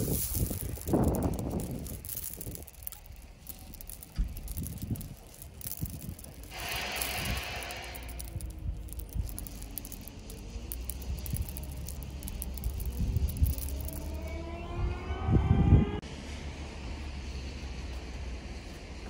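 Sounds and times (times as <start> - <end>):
wind rumble on microphone: 0.0 - 10.1, 10.9 - 16.0
gravel pebbles falling from hand: 0.0 - 14.7.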